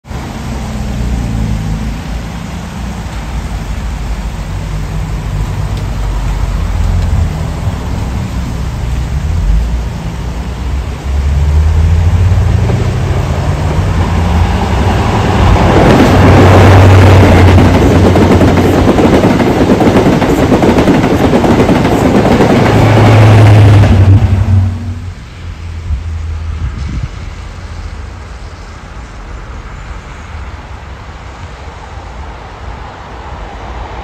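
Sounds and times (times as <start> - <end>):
diesel train engine drone: 0.0 - 34.0
train rushing on rails: 0.0 - 34.0.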